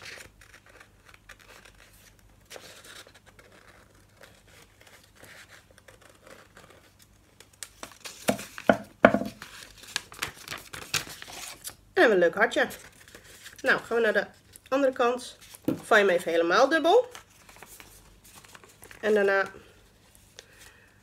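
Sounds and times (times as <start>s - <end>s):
paper rustling and crinkling: 0.0s - 11.8s, 16.8s - 20.8s.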